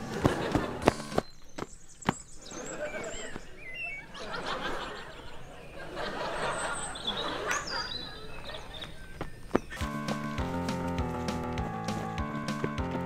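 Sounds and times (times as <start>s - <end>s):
crowd laughing: 0.0s - 1.0s, 2.4s - 9.0s.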